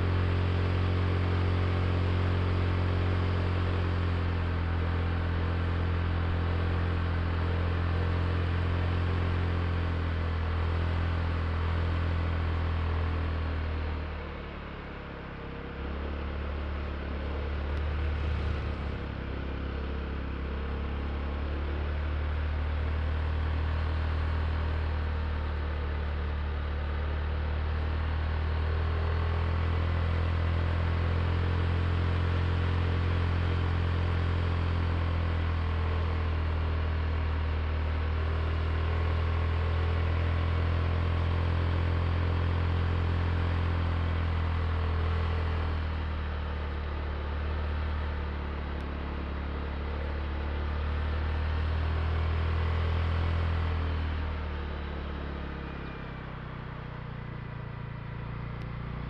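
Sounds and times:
road and wind noise: 13.1 - 21.9
scooter engine running: 14.7 - 21.8, 45.6 - 59.0.

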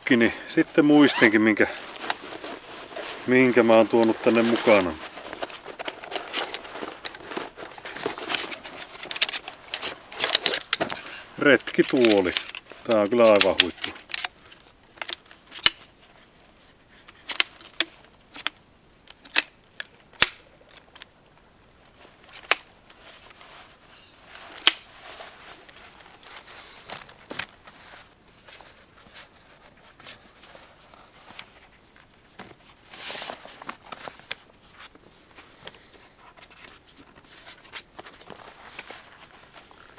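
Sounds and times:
fabric rustling: 0.6 - 14.8, 22.9 - 39.9
chair frame clicking and snapping: 17.3 - 19.6, 20.2 - 20.9.

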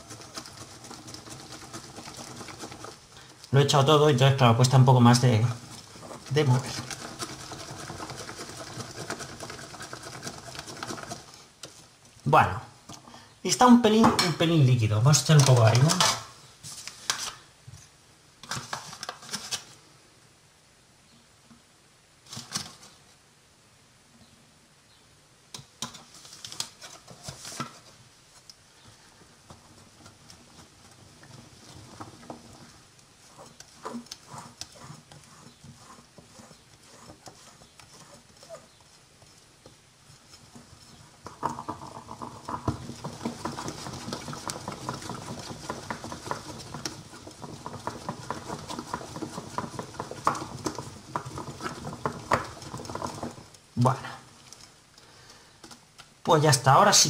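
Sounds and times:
whisk in batter in bowl: 0.0 - 12.0, 29.4 - 54.8.

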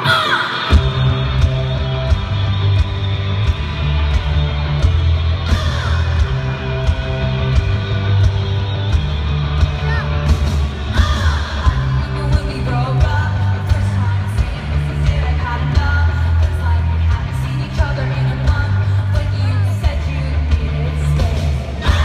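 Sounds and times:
live pop-rock band: 0.0 - 22.0
woman singing: 11.0 - 22.0.

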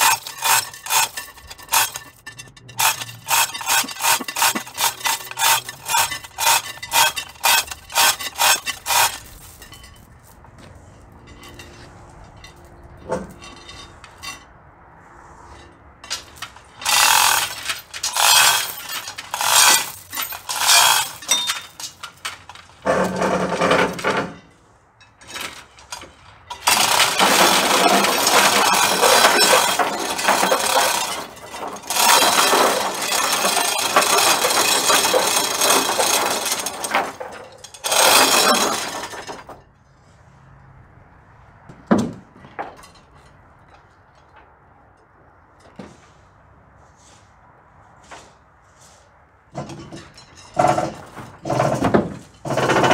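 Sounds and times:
ratchet clicking: 0.0 - 9.7, 16.8 - 22.0, 31.8 - 37.0
chain hoist chain rattling: 0.0 - 10.4, 11.2 - 14.5, 15.6 - 24.6, 25.2 - 39.6, 49.6 - 52.9.

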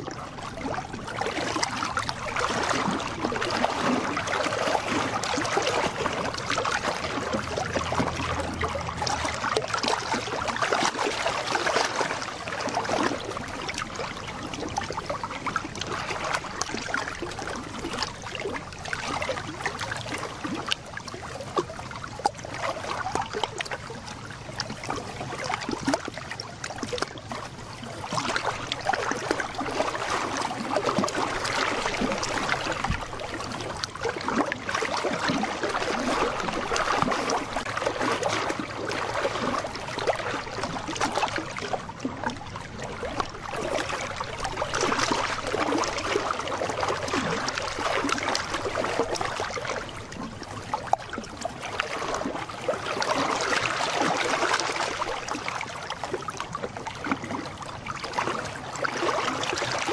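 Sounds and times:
waves lapping against rocks: 0.0 - 59.9.

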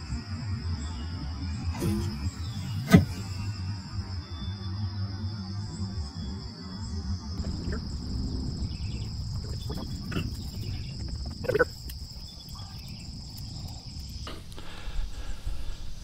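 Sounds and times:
high-pitched insect drone: 0.0 - 14.2
low outdoor rumble: 7.2 - 15.7.

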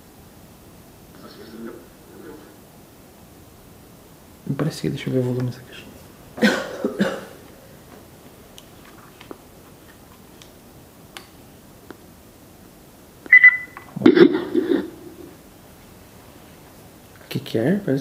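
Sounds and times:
short high beep: 13.3 - 13.9.

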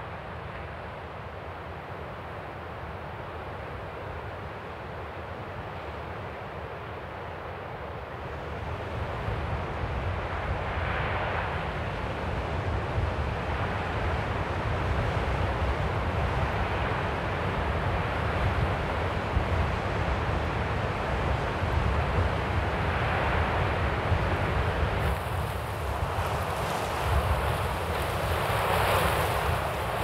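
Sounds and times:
strong wind blowing: 8.7 - 30.0.

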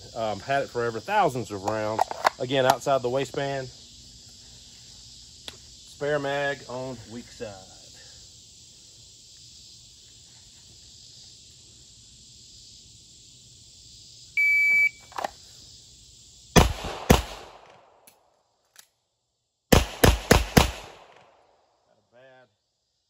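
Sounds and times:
insect buzz: 0.0 - 23.0
pistol shots: 16.6 - 17.9, 19.7 - 21.4.

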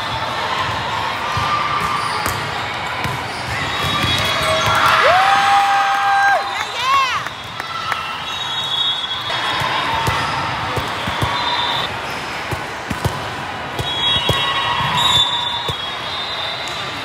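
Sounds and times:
volleyballs bouncing and being hit: 0.0 - 5.1, 9.2 - 17.0
hubbub of voices and shouts: 0.0 - 17.0.

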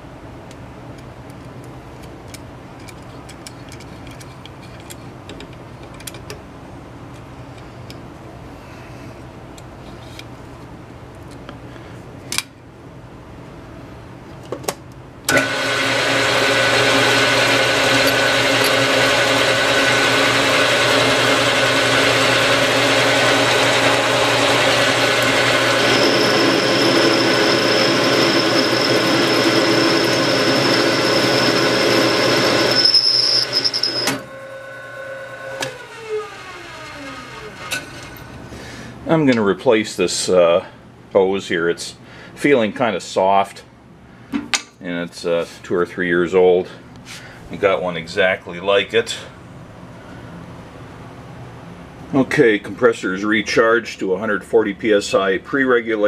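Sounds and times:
metal lathe cutting: 15.3 - 34.6
motor winding down: 15.3 - 38.2
thin high squeal: 32.6 - 34.1.

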